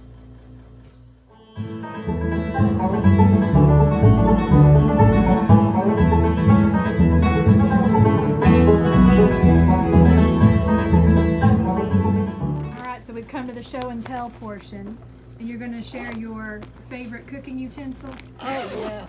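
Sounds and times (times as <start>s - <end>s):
instrumental music with bass line: 1.3s - 12.9s.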